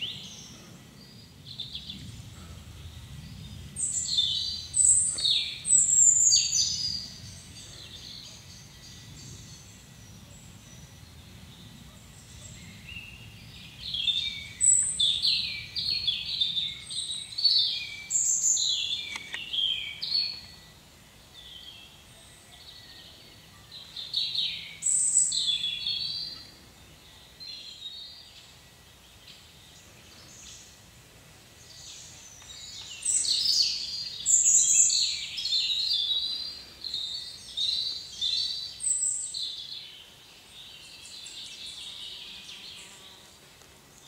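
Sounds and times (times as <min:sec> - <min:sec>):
songbirds chirping and trilling: 0:00.0 - 0:44.0.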